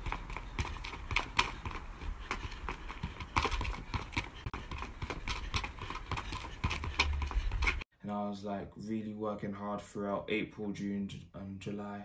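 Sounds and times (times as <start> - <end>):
football taps on tarmac: 0.0 - 7.7.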